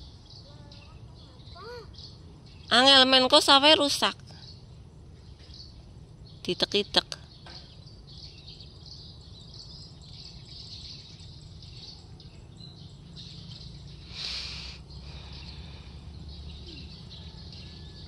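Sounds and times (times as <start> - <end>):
birds and insects chirping: 0.0 - 18.0
burst of hissing noise: 14.1 - 14.8.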